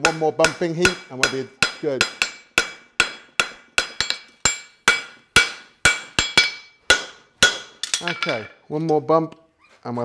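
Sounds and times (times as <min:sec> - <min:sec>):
hammer striking steel on anvil: 0:00.0 - 0:08.5.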